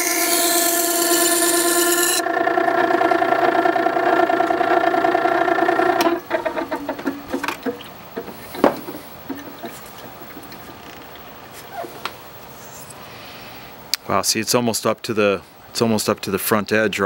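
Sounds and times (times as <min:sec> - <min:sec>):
sharpener motor humming: 0:00.0 - 0:07.7
blade hissing on grinding wheel: 0:00.0 - 0:10.6
jig knocks: 0:02.2 - 0:10.8.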